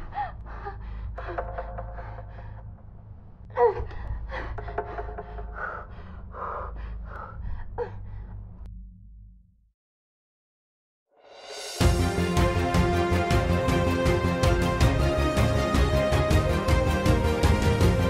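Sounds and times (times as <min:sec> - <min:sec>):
low droning film score: 0:00.0 - 0:09.7.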